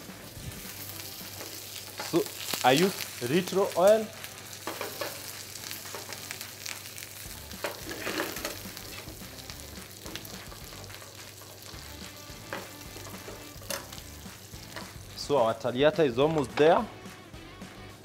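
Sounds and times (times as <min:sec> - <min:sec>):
steak sizzling in frying pan: 0:00.0 - 0:15.7
small crackles and clicks: 0:01.2 - 0:11.9, 0:12.5 - 0:15.0.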